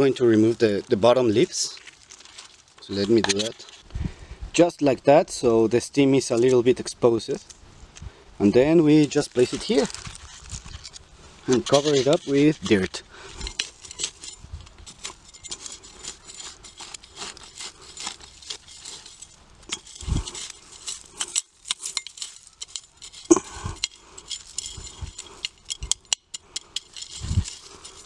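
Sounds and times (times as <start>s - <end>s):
hand scraping dry dirt: 0.0s - 4.0s, 8.4s - 28.0s.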